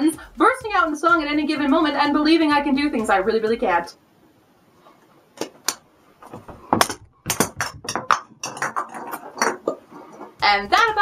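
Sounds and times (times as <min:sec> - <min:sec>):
juggling balls knocking: 0:05.4 - 0:11.0.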